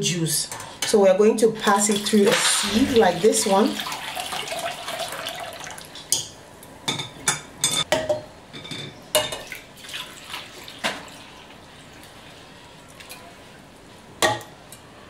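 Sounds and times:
drink pouring and splashing: 2.0 - 6.1, 9.4 - 13.4.

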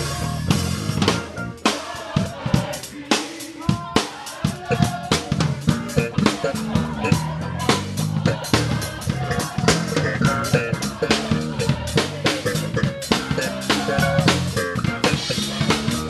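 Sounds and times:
bass guitar line: 0.0 - 1.7, 4.6 - 16.0
drum kit beat: 0.0 - 16.0.

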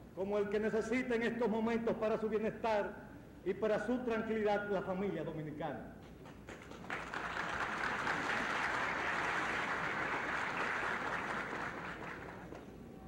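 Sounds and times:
audience applauding: 6.2 - 12.7.

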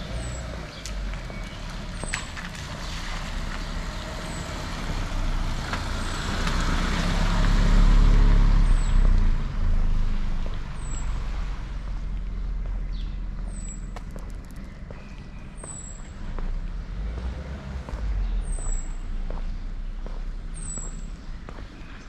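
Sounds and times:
vehicle passing on wet road: 0.0 - 12.6, 16.2 - 19.9.

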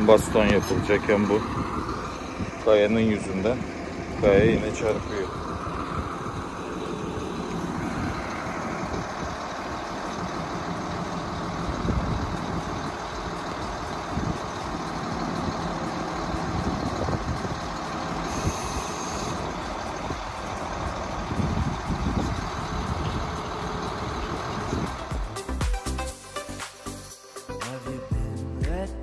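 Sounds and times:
diesel engine running: 0.0 - 27.3.

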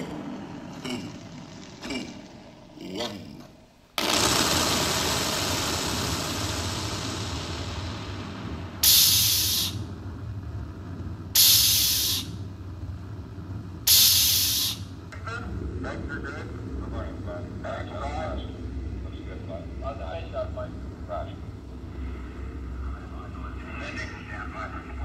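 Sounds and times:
low hum: 0.0 - 25.0
loud bursts of hiss: 4.0 - 9.9, 11.4 - 12.4, 13.9 - 14.9
electronic hissing noise: 4.0 - 10.0, 11.3 - 12.4, 13.8 - 15.0.

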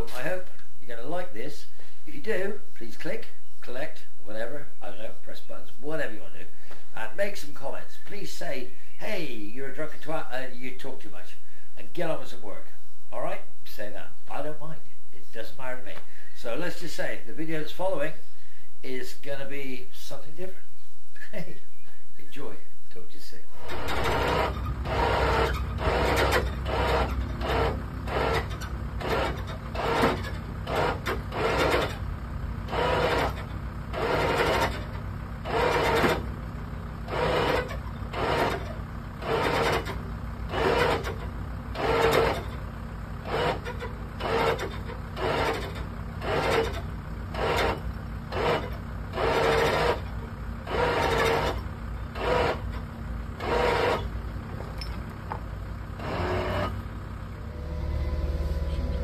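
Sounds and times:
low steady hum: 0.0 - 59.0
winch ratchet rasping: 23.6 - 59.0.

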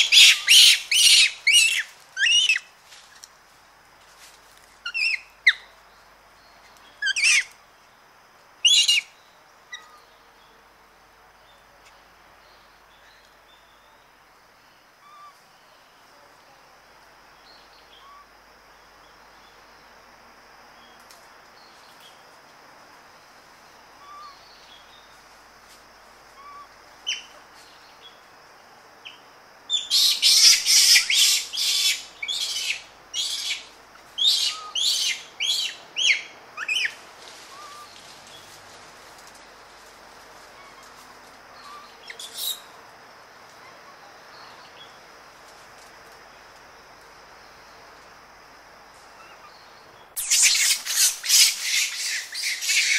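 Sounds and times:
aggressive monkey calls: 0.0 - 2.6, 7.0 - 7.5, 29.9 - 36.9, 50.2 - 52.9
monkeys screaming: 0.0 - 2.6, 50.2 - 52.9
faint bird chirps: 8.6 - 10.6.

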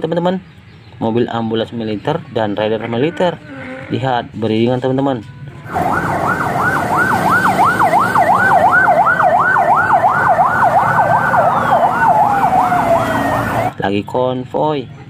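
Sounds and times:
street traffic noise: 0.0 - 15.0
descending siren tone: 5.6 - 13.7
ambulance siren yelping: 5.7 - 13.8.

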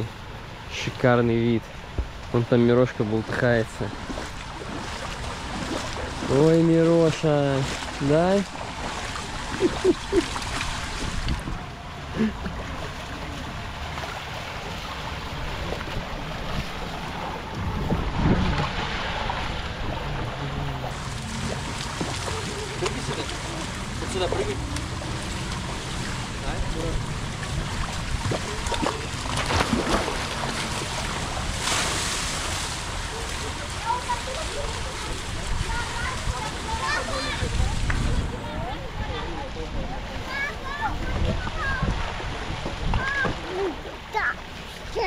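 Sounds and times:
shallow water splashing: 1.6 - 45.0
wind buffeting microphone: 7.7 - 11.9, 15.1 - 31.6, 32.3 - 43.8.

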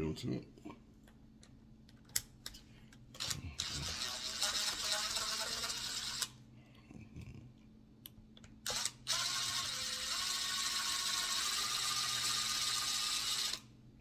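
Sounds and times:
cordless driver whining: 3.2 - 6.3, 8.6 - 13.7.

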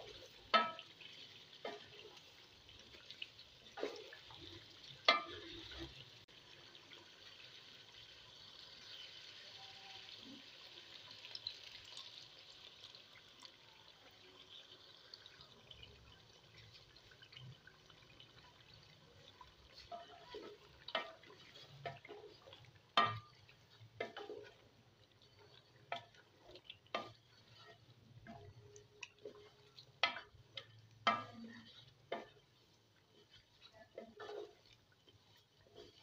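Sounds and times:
spatula knocking and scraping pot: 0.0 - 2.2, 5.0 - 5.9, 19.7 - 36.0
thick gravy squelching: 16.6 - 36.0.

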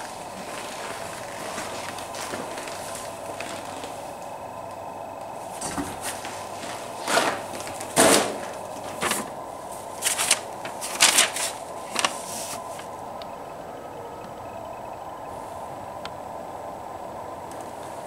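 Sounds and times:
paper rustling and crinkling: 0.0 - 4.4, 5.4 - 13.0
steady background hum: 0.0 - 18.0.

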